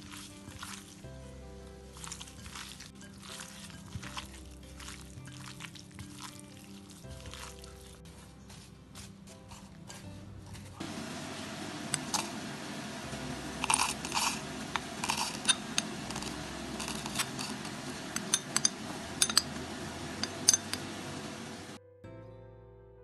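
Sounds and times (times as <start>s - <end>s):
scraping in metal jar: 13.2s - 21.8s
spoon clinking against metal jar: 13.6s - 21.6s.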